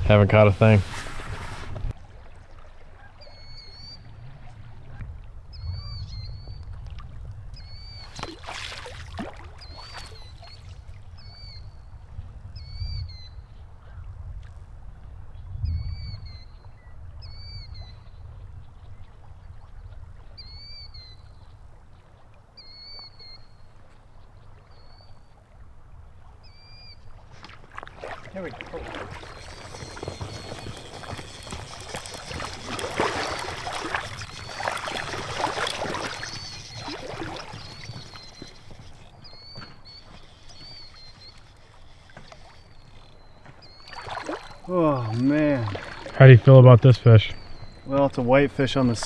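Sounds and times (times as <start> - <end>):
rustling noise: 0.4 - 2.0
bird chirping: 3.2 - 4.0, 28.3 - 45.4, 46.2 - 49.0.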